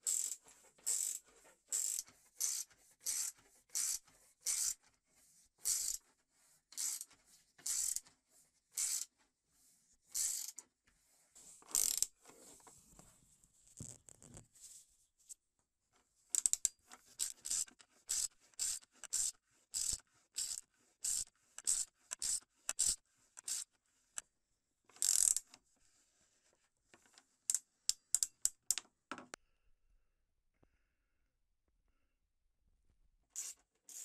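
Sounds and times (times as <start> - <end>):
ratchet wrench clicking: 0.0 - 4.8, 5.6 - 6.0, 6.8 - 8.0, 8.8 - 9.1, 10.1 - 10.6, 11.7 - 12.1, 16.3 - 23.7, 24.9 - 25.5, 27.9 - 28.8, 33.4 - 34.0.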